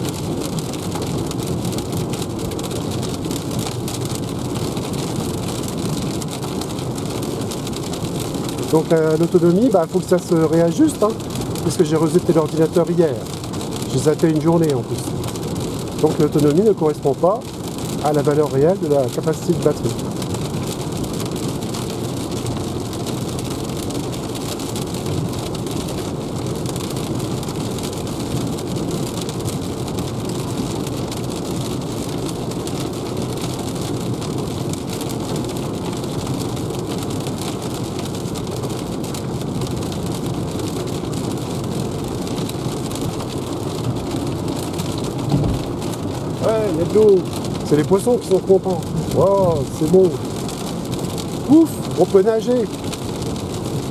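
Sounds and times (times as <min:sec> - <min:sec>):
heavy rain on car roof: 0:00.0 - 0:53.9
tyre noise on wet road: 0:00.0 - 0:53.9.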